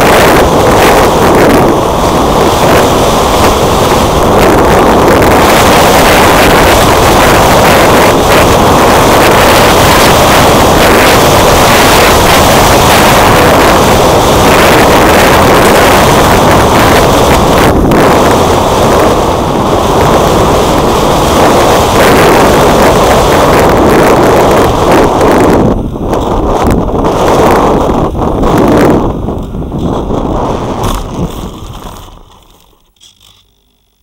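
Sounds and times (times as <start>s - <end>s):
wind buffeting microphone: 0.0s - 32.9s
electric motor and propeller: 0.0s - 34.0s.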